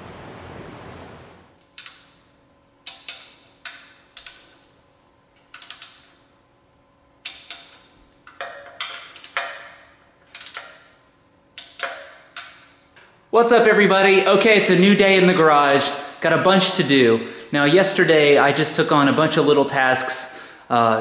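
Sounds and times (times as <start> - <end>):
hand ratchet clicking: 1.8 - 2.2, 2.8 - 4.6, 5.4 - 6.2, 7.2 - 10.9, 11.6 - 12.8.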